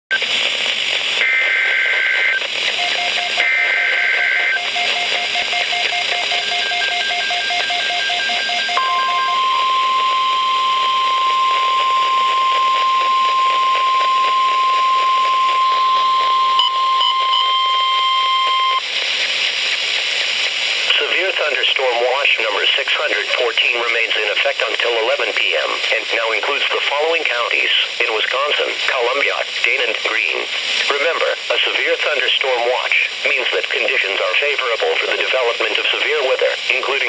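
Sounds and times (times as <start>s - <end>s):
static hiss: 0.1s - 7.0s, 10.4s - 37.0s
rapid beeping: 1.2s - 18.8s
warning alarm tone: 2.8s - 18.8s
screechy digital bursts: 6.5s - 18.8s.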